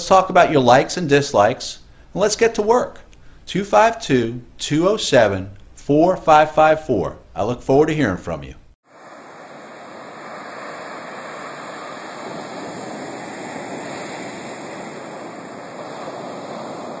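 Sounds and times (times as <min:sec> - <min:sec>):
waves washing on beach: 0:08.9 - 0:17.0.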